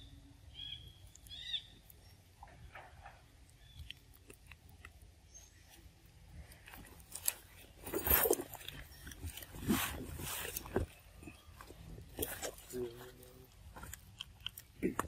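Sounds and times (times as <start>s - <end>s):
leaves and twigs rustling: 5.3s - 14.8s.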